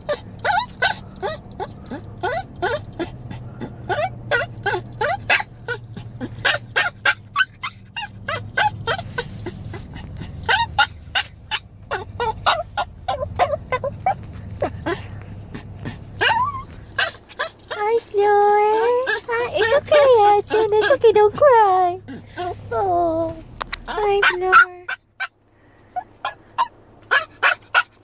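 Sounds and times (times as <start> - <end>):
small dog whining and yipping: 0.0 - 28.0.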